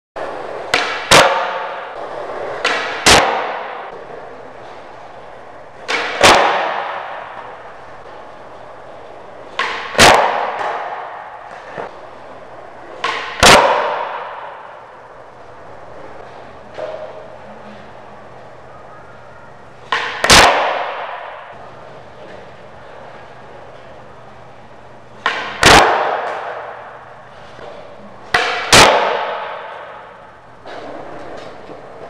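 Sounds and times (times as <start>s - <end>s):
skateboard landing clack echoing: 0.2s - 8.4s, 9.0s - 12.0s, 12.8s - 14.9s, 19.8s - 21.6s, 25.2s - 32.0s
skateboard tail pop: 0.7s - 1.8s, 2.6s - 3.8s, 5.9s - 7.2s, 9.5s - 11.9s, 13.0s - 14.6s, 19.9s - 21.4s, 25.2s - 26.8s, 28.3s - 30.0s.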